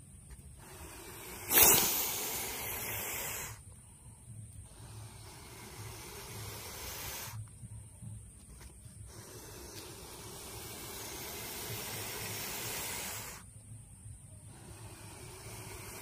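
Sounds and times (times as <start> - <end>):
monitor lizard hissing: 0.5 - 3.6, 4.6 - 7.4, 9.0 - 13.5, 14.4 - 16.0.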